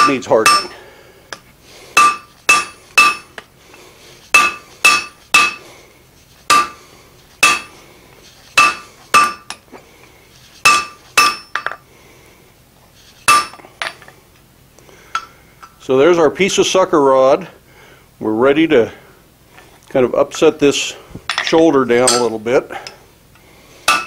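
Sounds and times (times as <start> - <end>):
anvil ringing: 0.0 - 0.8, 2.0 - 3.4, 4.4 - 5.6, 6.5 - 6.8, 7.4 - 7.7, 8.6 - 9.6, 10.7 - 11.7, 13.3 - 13.6, 21.3 - 22.5
hammer striking hot steel on anvil: 0.0 - 0.8, 2.0 - 3.4, 4.3 - 5.6, 6.5 - 6.8, 7.4 - 7.7, 8.6 - 9.6, 10.6 - 11.8, 13.3 - 13.6, 22.0 - 22.4.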